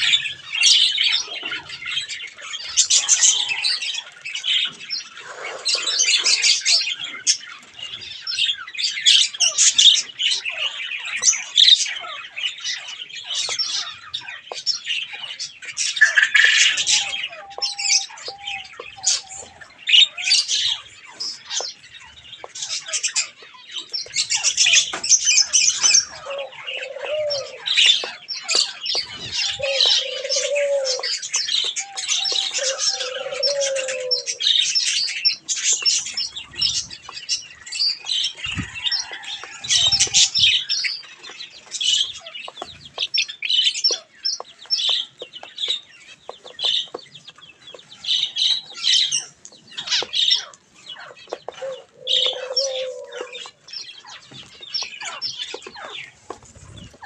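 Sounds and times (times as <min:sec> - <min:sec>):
small birds chattering and chirping: 0:00.0 - 0:57.0
dove cooing: 0:25.8 - 0:34.6, 0:51.0 - 0:53.6.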